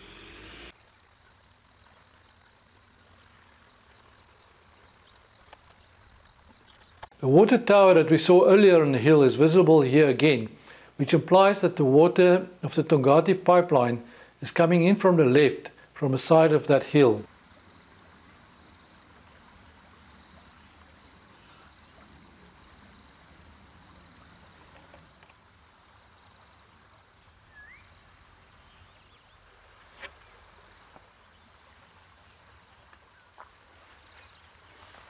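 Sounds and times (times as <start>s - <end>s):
insects chirring: 0.0s - 35.0s
bird chirp: 27.5s - 29.5s.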